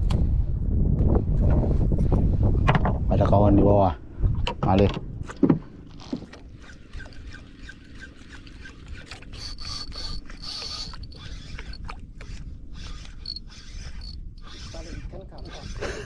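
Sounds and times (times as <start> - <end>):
fishing reel cranking: 5.9 - 16.0
short high whines: 9.4 - 11.9.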